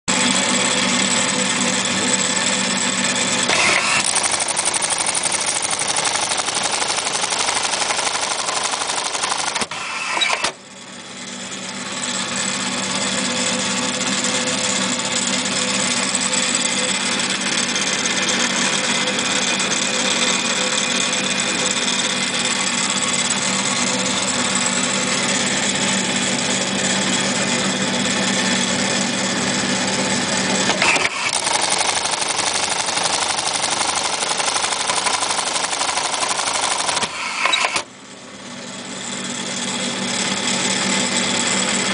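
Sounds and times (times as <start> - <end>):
sewing machine clattering: 3.5 - 10.6, 30.6 - 37.9
sewing machine clunk: 3.5 - 10.6, 30.6 - 37.9.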